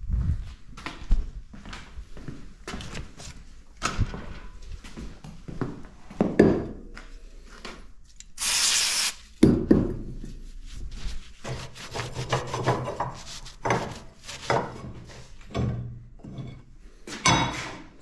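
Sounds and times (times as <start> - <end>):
short hiss: 8.4 - 9.2
hand tools scraping on metal: 11.4 - 15.5.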